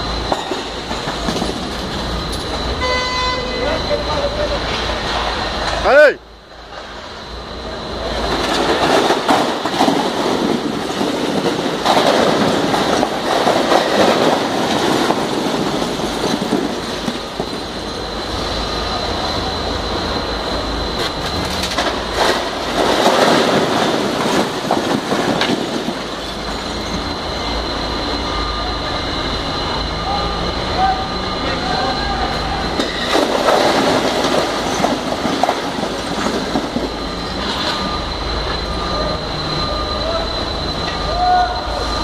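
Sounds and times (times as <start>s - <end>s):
crates of bottles crashing down: 8.4s - 17.6s, 21.3s - 27.0s, 32.8s - 37.7s
thin steady high tone: 26.4s - 32.7s, 36.9s - 42.0s.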